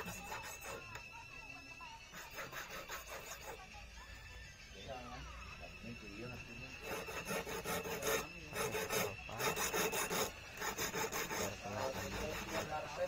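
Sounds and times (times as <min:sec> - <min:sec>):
hand file rasping on metal: 0:00.0 - 0:01.1, 0:02.0 - 0:03.8, 0:06.6 - 0:13.0.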